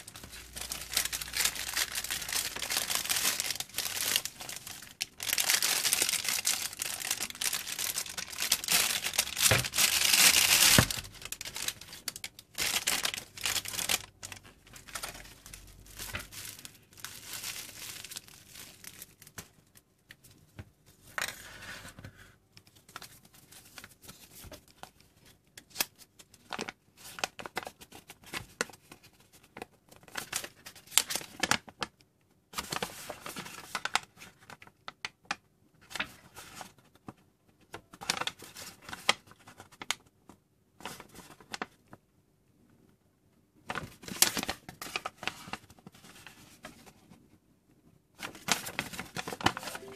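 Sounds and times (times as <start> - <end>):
plastic wrap crinkling and tearing: 0.0 - 19.8, 48.2 - 49.9.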